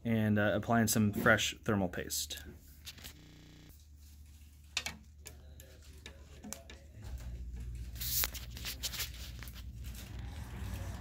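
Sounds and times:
faint clicks and taps: 4.8s - 7.7s.

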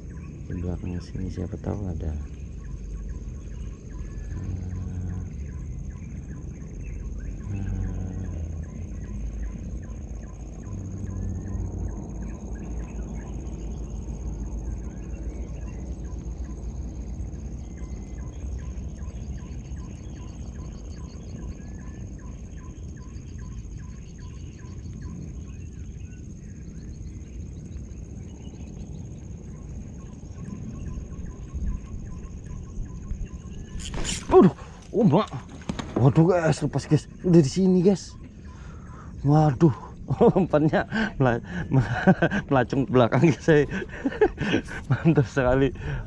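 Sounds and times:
low rumble: 0.0s - 33.7s
high-pitched whine: 0.0s - 34.4s.

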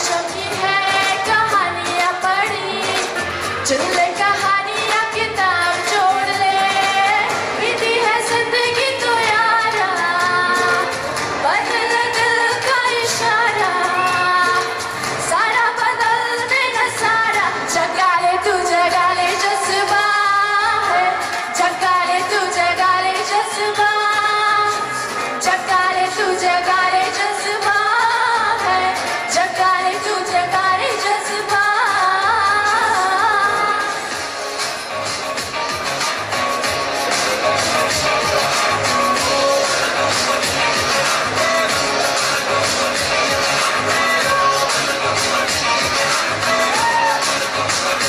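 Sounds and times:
woman singing into a microphone: 0.0s - 34.4s.

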